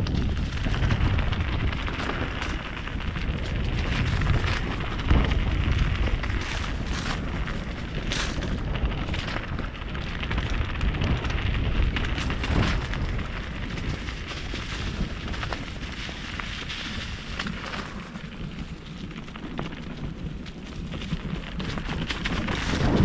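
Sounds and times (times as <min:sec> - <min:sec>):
bike rattling: 0:00.0 - 0:23.0
tyres on dirt trail: 0:00.0 - 0:23.0
wind buffeting microphone: 0:00.0 - 0:23.0.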